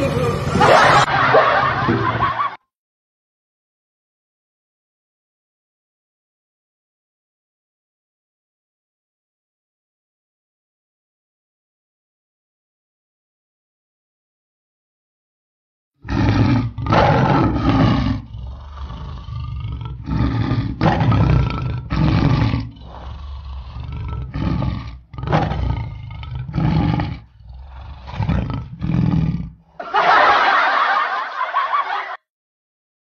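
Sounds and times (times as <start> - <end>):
low growling: 0.0 - 1.2, 16.0 - 29.8
tiger roars: 0.0 - 1.2, 16.0 - 29.8.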